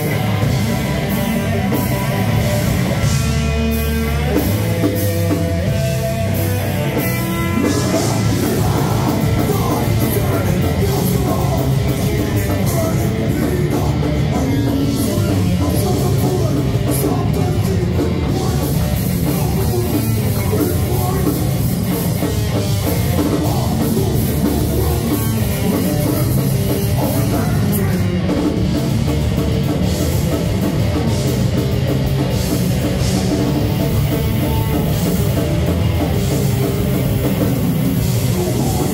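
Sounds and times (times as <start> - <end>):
bass guitar: 0.0 - 38.9
distorted electric guitar: 0.0 - 38.9
drum kit: 0.0 - 38.9
person singing into a microphone: 7.6 - 22.4.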